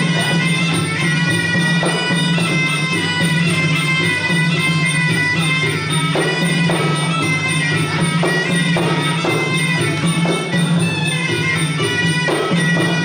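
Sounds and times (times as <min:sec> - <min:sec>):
drum strokes: 0:00.0 - 0:13.0.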